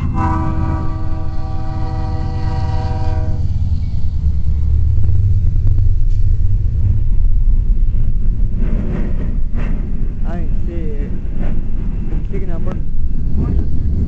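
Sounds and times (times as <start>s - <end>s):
train horn blast: 0.0s - 3.6s
diesel locomotive rumble: 0.0s - 14.0s.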